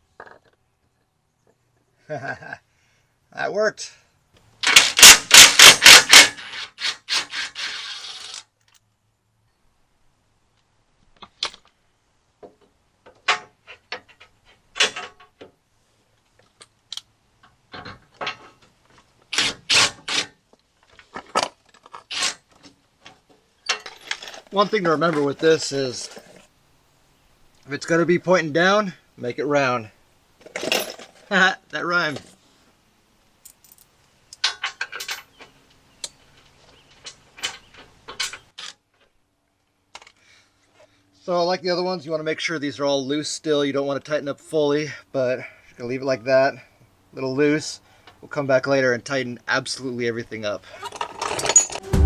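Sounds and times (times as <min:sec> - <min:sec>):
metal bolts clinking and rattling: 0:13.0 - 0:15.6, 0:17.4 - 0:26.4, 0:30.4 - 0:31.3, 0:33.4 - 0:39.2, 0:50.8 - 0:51.9.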